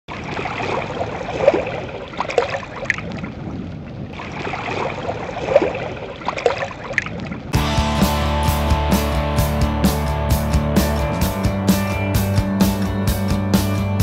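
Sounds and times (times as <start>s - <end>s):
water lapping and splashing: 0.1s - 7.6s.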